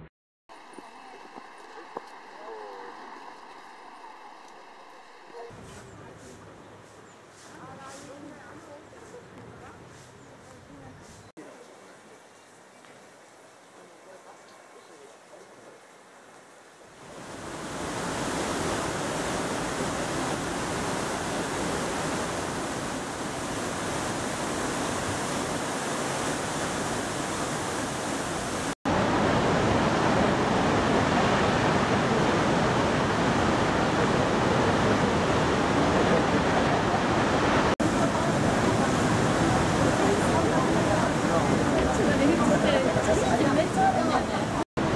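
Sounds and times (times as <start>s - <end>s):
waterfall rushing: 17.0s - 44.9s.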